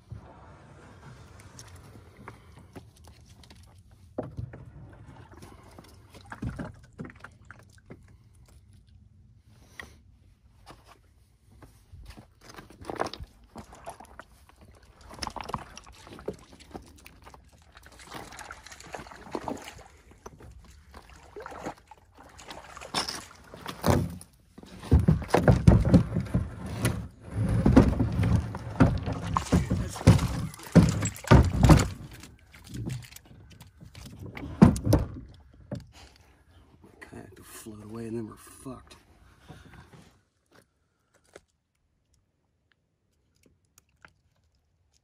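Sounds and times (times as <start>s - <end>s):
paddle splashes: 13.6s - 24.1s, 27.4s - 33.2s.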